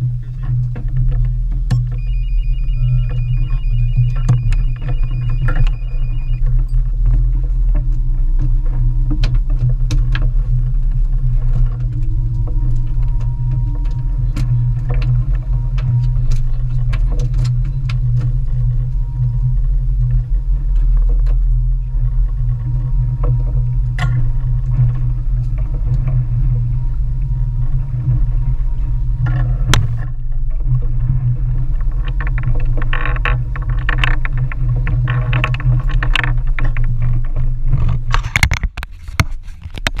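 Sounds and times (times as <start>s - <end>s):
boat engine droning: 0.0s - 38.4s.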